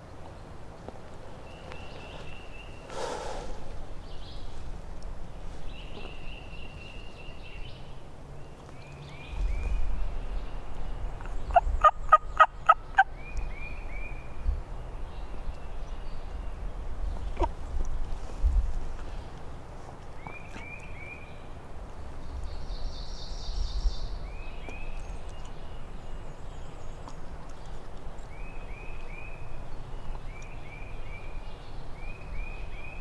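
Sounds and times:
small birds singing: 0.0 - 18.0, 19.0 - 33.0
wind rumble on microphone: 9.1 - 20.7, 21.3 - 28.0
turkey gobbling: 11.5 - 13.1.

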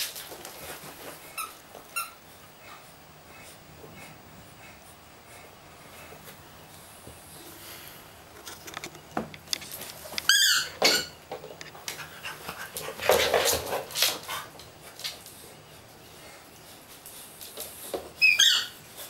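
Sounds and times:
high squeak: 10.3 - 11.2, 18.2 - 18.8.

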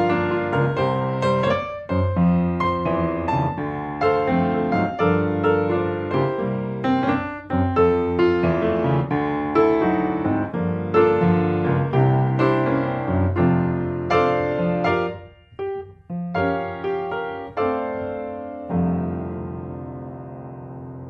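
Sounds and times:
slow piano melody: 0.0 - 21.0.

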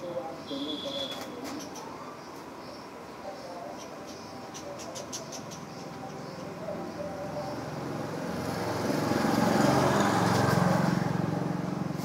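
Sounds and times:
vehicle engine approaching: 6.5 - 12.0.

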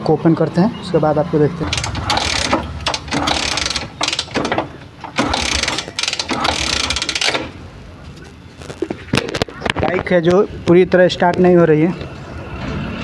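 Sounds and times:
ratchet wrench clicking: 1.7 - 7.6.

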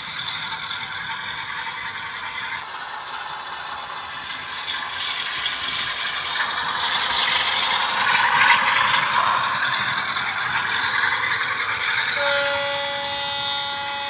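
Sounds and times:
model train clattering on track: 0.0 - 14.0
model diesel engine sound: 12.1 - 14.0.

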